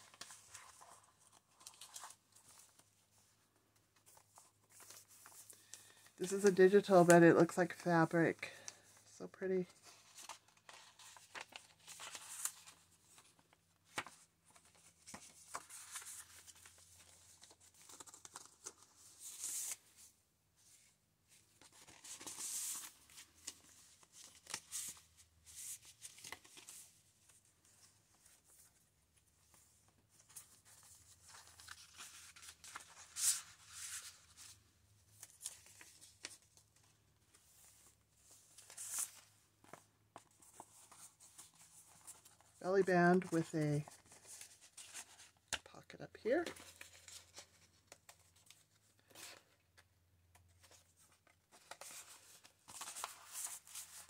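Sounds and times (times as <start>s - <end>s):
paper pages rustling: 0.0s - 7.8s, 8.5s - 54.0s.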